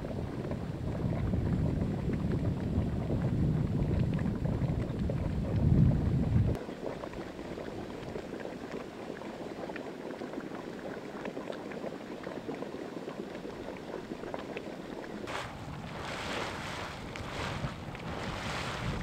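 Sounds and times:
wind buffeting microphone: 0:00.0 - 0:06.6, 0:15.3 - 0:19.0
mud pot bubbling: 0:00.0 - 0:19.0.

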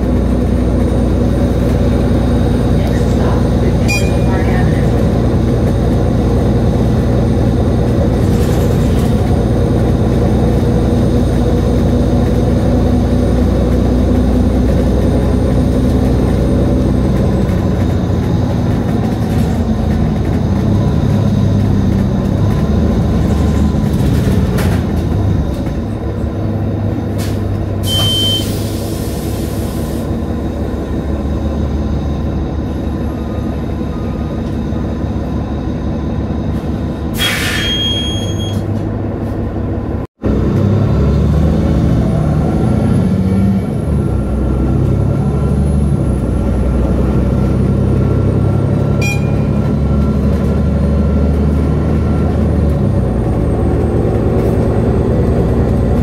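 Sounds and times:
bus drivetrain and road noise: 0:00.0 - 0:56.0
high beep: 0:03.8 - 0:04.6, 0:27.9 - 0:28.5, 0:37.6 - 0:38.6, 0:49.0 - 0:49.7.

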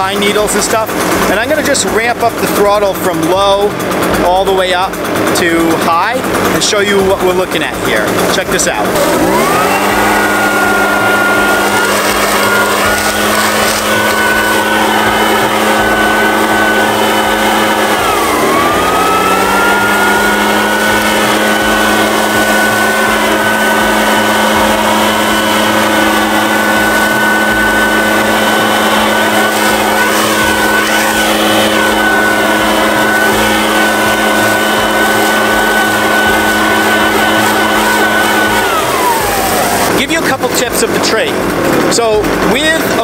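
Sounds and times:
leaf blower engine running: 0:00.0 - 0:43.0
air rushing from nozzle: 0:07.9 - 0:40.1.

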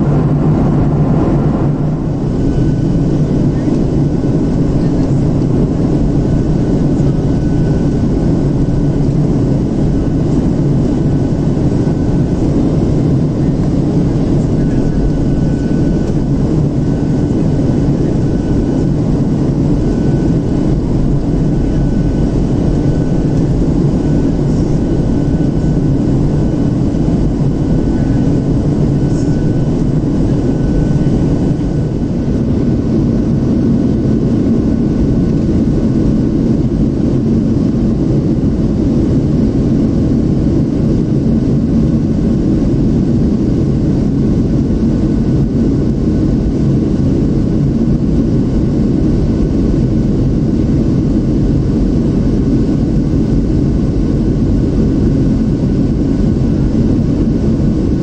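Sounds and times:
faint high whine: 0:00.0 - 0:36.7
airplane cabin engine roar: 0:00.0 - 0:58.0.

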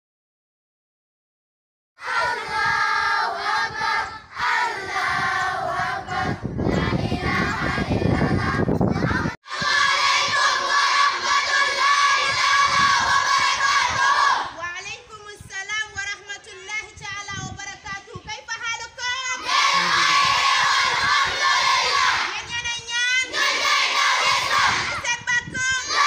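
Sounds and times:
children chanting in unison: 0:02.0 - 0:14.6, 0:19.4 - 0:22.4, 0:23.2 - 0:25.0, 0:25.8 - 0:26.0
crowd noise: 0:19.4 - 0:25.1.

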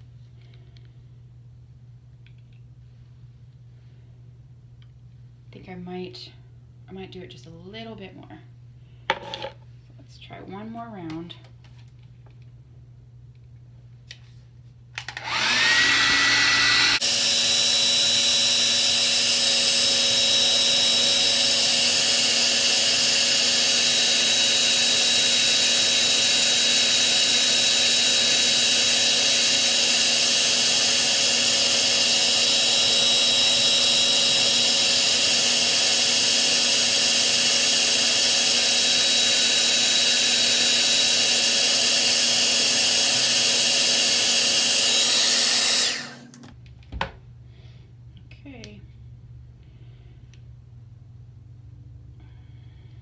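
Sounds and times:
hair dryer running: 0:15.0 - 0:46.6.

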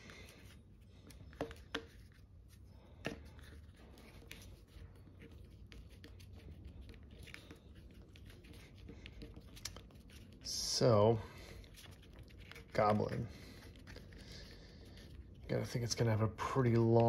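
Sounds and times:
soft ticks and rustling: 0:15.4 - 0:17.0.

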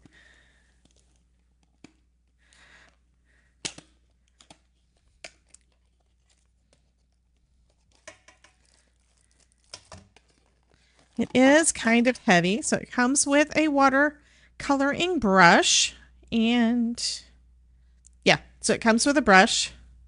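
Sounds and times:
cardboard rustling: 0:04.3 - 0:11.4.

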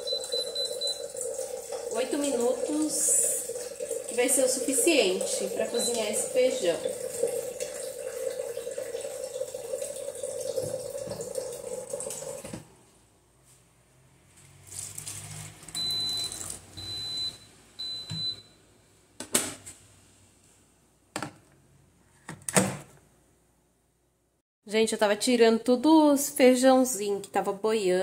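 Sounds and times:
pressure cooker beeps: 0:00.0 - 0:01.1, 0:05.7 - 0:06.3, 0:15.8 - 0:18.6
tap running into sink: 0:10.5 - 0:12.7.

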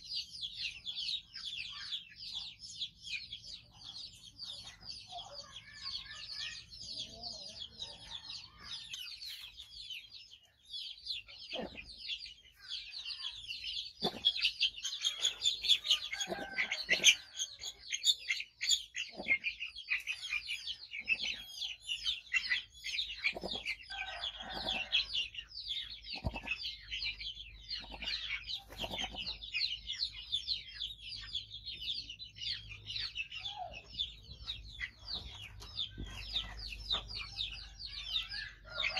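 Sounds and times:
chickens clucking: 0:00.0 - 0:38.9
dense high-pitched chirping: 0:08.1 - 0:38.9.

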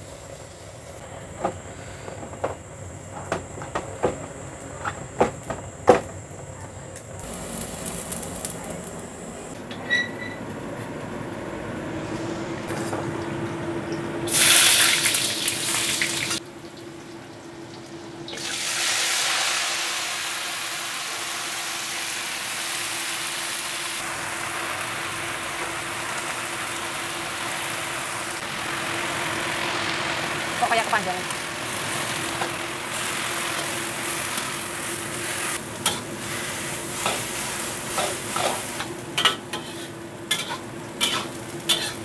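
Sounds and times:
oil sizzling in a wok: 0:07.2 - 0:09.6, 0:14.3 - 0:42.0.

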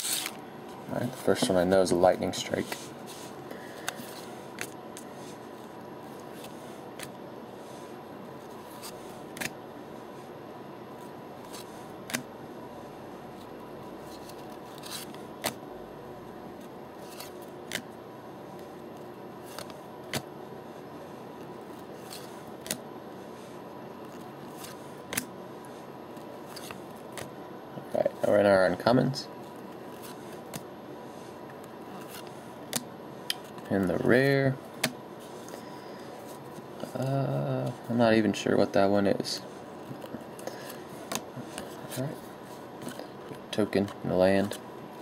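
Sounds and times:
trading cards snapping and sliding: 0:00.0 - 0:00.4, 0:03.8 - 0:07.2, 0:08.6 - 0:09.6, 0:11.0 - 0:12.3, 0:14.1 - 0:15.6, 0:17.0 - 0:17.9, 0:19.4 - 0:20.3, 0:21.7 - 0:22.8, 0:24.0 - 0:25.3, 0:26.2 - 0:27.3, 0:29.5 - 0:30.7, 0:31.6 - 0:33.6, 0:39.8 - 0:41.9
faint high hum: 0:00.0 - 0:45.0.

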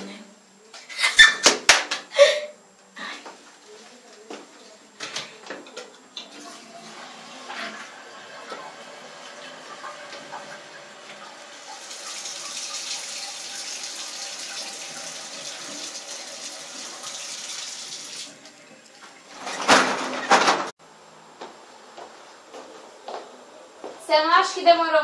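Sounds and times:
water splashing into sink: 0:06.2 - 0:18.4.

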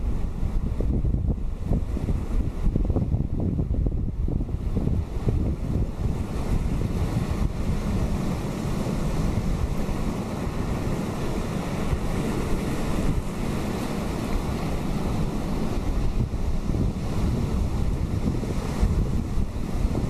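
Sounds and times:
wind rumble on microphone: 0:00.0 - 0:20.0
surf breaking on rocks: 0:04.7 - 0:20.0.

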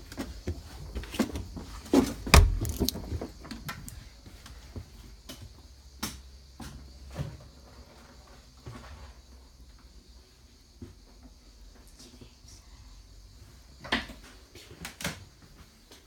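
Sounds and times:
knocks and thumps: 0:02.3 - 0:03.3.

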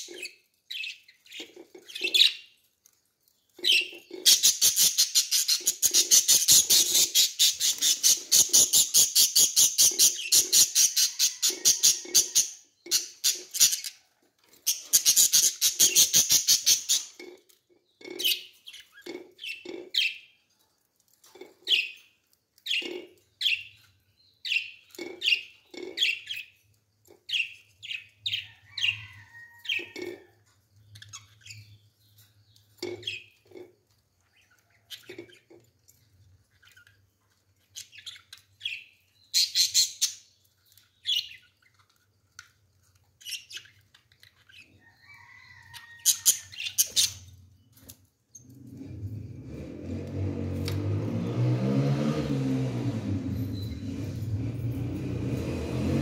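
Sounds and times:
budgerigars chirping: 0:03.6 - 0:14.0.

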